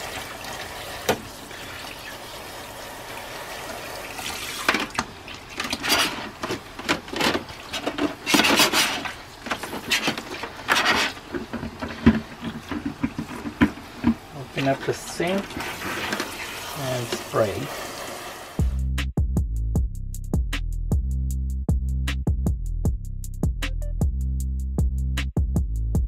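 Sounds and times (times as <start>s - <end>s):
faucet sprayer spraying water: 0.0s - 5.2s, 9.6s - 18.7s.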